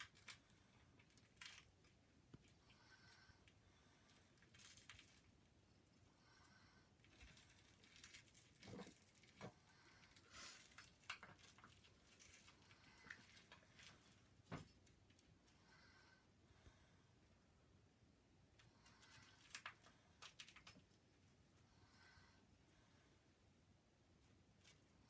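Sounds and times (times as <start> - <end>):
cat rustling a toy: 4.0 - 5.4, 7.0 - 15.2.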